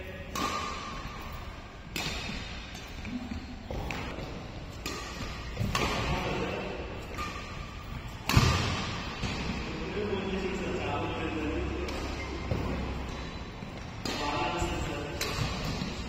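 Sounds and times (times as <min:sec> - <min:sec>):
rackets hitting shuttlecock: 0:00.2 - 0:16.0.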